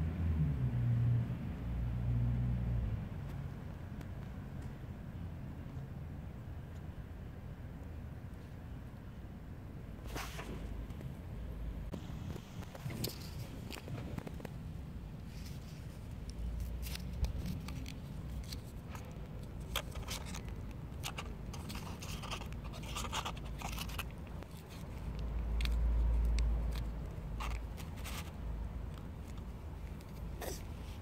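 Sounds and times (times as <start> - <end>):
plastic pouch crinkling and scraping: 15.2 - 31.0.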